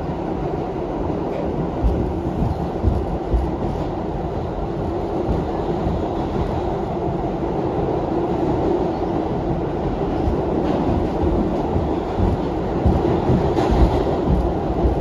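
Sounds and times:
subway train rumbling on rails: 0:00.0 - 0:15.0
low thumps: 0:01.8 - 0:03.9, 0:10.2 - 0:15.0.

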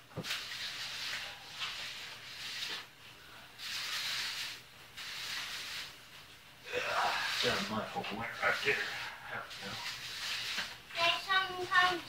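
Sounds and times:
float scraping wet concrete: 0:03.6 - 0:06.0, 0:07.1 - 0:12.0.

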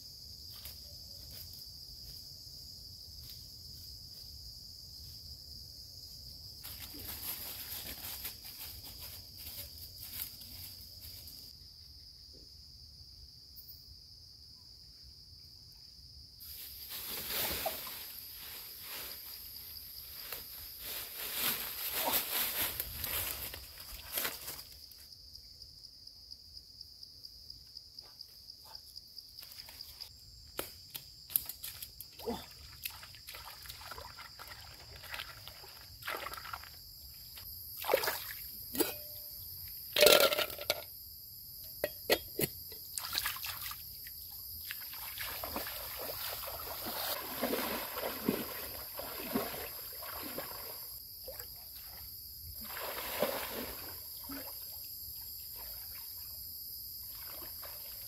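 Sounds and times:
jungle insect drone: 0:00.0 - 0:58.0
water splashing and trickling: 0:16.5 - 0:24.6, 0:31.4 - 0:38.9, 0:42.7 - 0:58.0.

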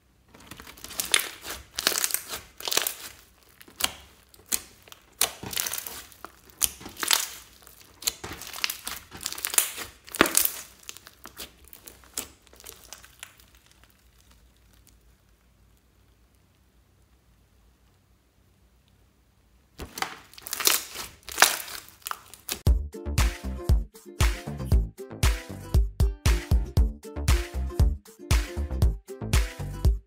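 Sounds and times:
slime squishing and crackling: 0:00.2 - 0:17.1, 0:19.8 - 0:22.7.

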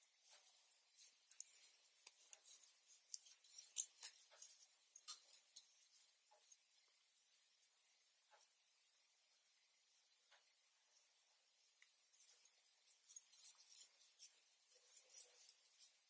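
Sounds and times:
knitting needles clicking: 0:00.2 - 0:06.6, 0:11.8 - 0:16.0.

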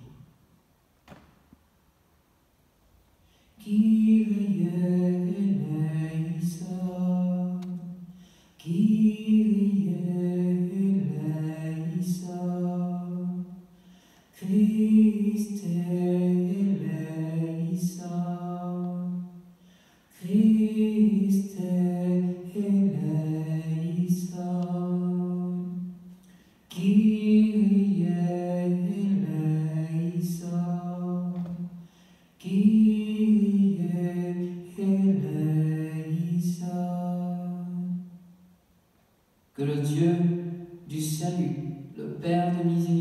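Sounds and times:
man singing a chant: 0:26.7 - 0:31.6, 0:32.4 - 0:38.0, 0:39.6 - 0:43.0.

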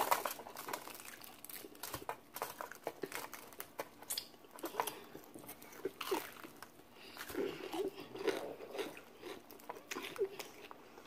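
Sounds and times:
crunchy chewing of fried chicken: 0:00.0 - 0:11.0.

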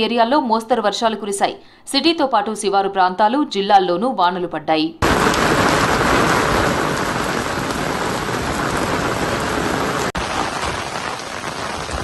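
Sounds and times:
heavy rain on paved road: 0:05.0 - 0:12.0.

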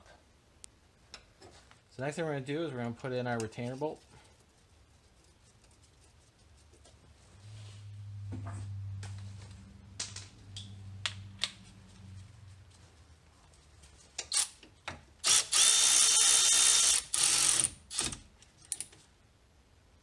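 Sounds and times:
cordless ratchet whining: 0:15.2 - 0:18.2.

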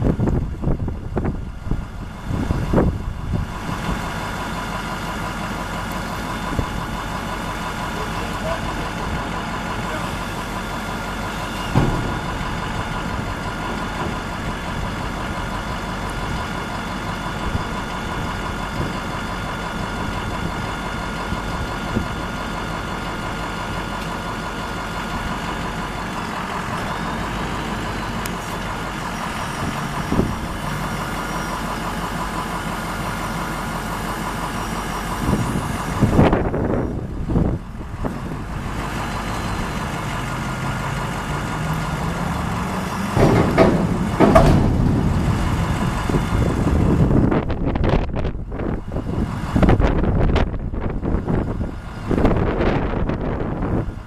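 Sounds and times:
diesel engine idling: 0:00.0 - 0:54.0
short knocks: 0:11.6 - 0:14.3, 0:42.8 - 0:46.7.

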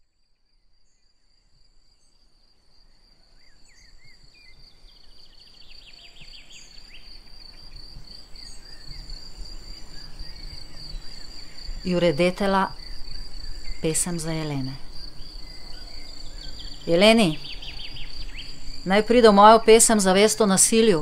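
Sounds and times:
insects chirring: 0:00.0 - 0:21.0
bird chirps: 0:03.0 - 0:21.0
descending bird trill: 0:08.4 - 0:21.0.

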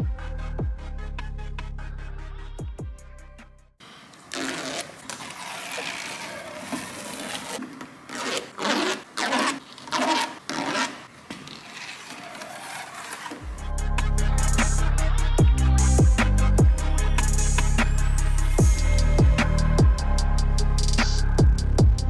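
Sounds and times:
tape liner peeling: 0:04.1 - 0:13.5.

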